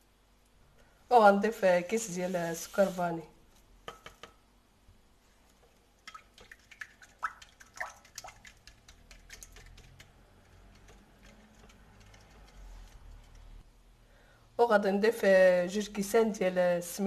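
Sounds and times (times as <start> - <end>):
liquid batter swishing: 1.9 - 3.2, 6.2 - 13.6
whisk clicking against glass bowl: 6.1 - 12.6.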